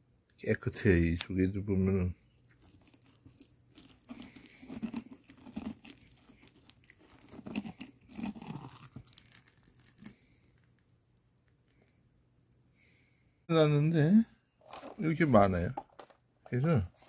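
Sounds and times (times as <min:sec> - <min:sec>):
hand scraping pumpkin seeds: 0:02.4 - 0:10.6.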